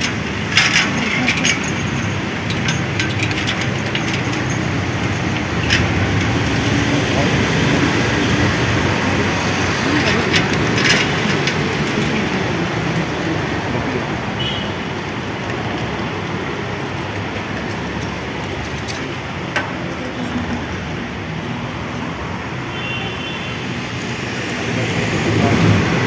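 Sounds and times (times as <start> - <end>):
people talking: 0.0 - 2.7, 6.6 - 14.2
road traffic: 0.0 - 26.0.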